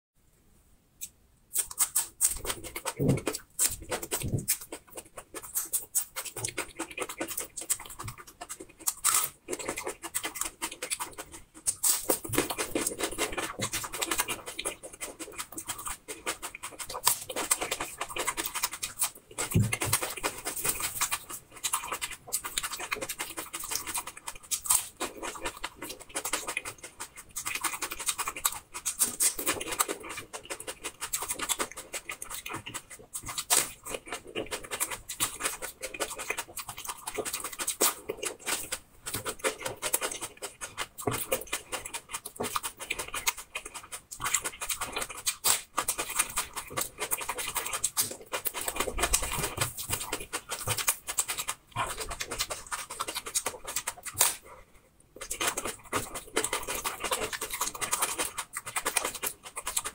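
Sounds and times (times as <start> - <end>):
crunching and chewing onion: 1.0 - 59.9.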